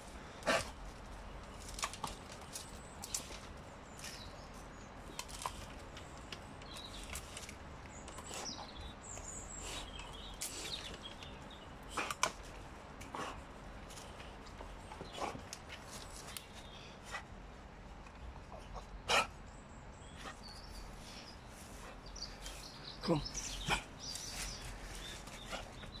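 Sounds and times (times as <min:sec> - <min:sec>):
wood and bark snapping: 0:01.4 - 0:04.3, 0:05.0 - 0:08.5.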